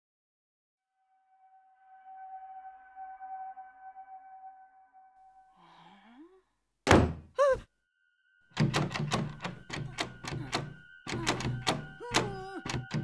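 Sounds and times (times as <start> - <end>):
heavy thunk: 6.9 - 7.3
person exclaiming: 7.3 - 7.7, 12.0 - 12.8
doorknob rattling: 8.6 - 13.0.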